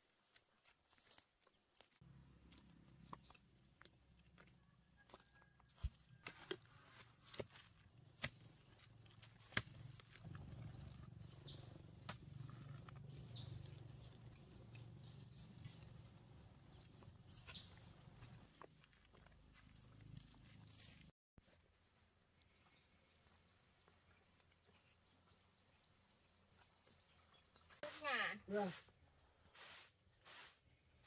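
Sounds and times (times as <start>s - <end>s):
bird chirping: 10.7s - 18.4s
digging tool scraping soil: 29.5s - 30.8s.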